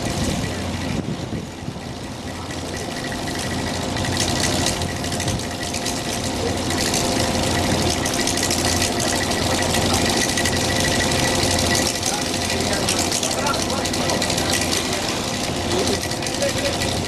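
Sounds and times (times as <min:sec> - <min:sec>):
wind and sea rushing: 0:00.0 - 0:02.3
ship machinery hum: 0:00.0 - 0:17.0.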